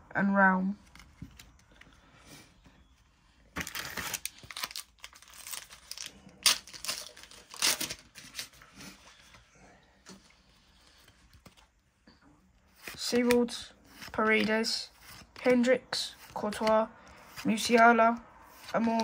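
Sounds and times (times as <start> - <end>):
foil wrapper crinkling and tearing: 3.6 - 8.5.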